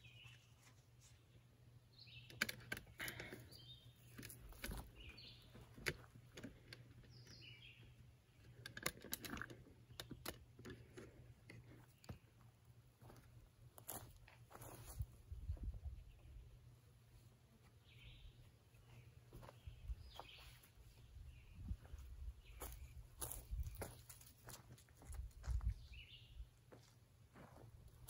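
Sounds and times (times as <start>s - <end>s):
bird chirps: 17.8s - 24.0s.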